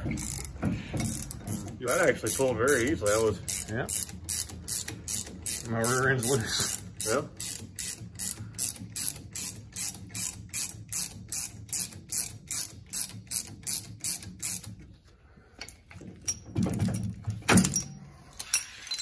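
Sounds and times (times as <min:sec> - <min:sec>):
ratchet wrench clicking: 0:00.0 - 0:14.8.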